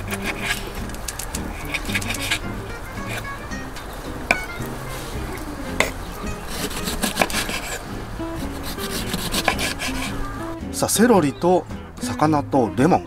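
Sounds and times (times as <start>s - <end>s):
knife scraping: 0.0s - 3.7s, 4.3s - 10.3s
background music: 0.0s - 13.0s.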